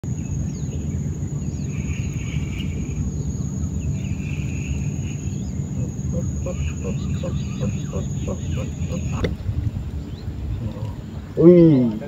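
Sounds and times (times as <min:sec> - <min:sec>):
low steady rumble: 0:00.0 - 0:12.0
buzzing insect calls: 0:00.1 - 0:11.2
high insect drone: 0:00.1 - 0:12.0.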